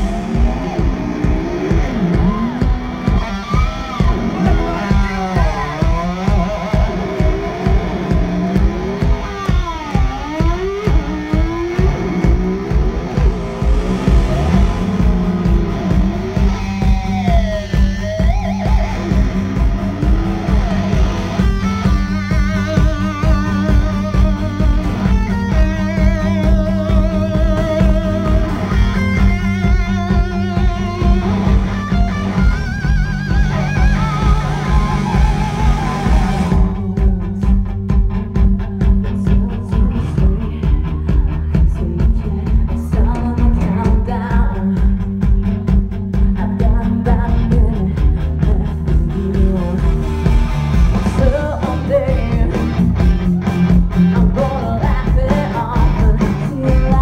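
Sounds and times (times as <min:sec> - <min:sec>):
electric guitar lead: 0:00.0 - 0:57.0
live rock band playing: 0:00.0 - 0:57.0
person singing: 0:33.5 - 0:45.3, 0:46.1 - 0:50.4, 0:51.0 - 0:57.0.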